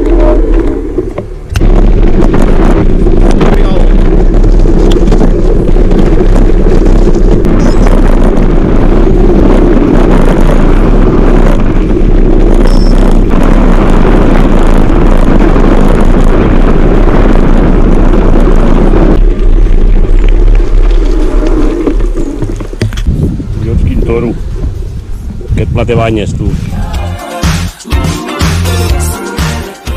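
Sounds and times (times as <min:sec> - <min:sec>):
bike tyres rolling over gravel: 0:00.0 - 0:25.8
wind buffeting microphone: 0:00.0 - 0:27.0.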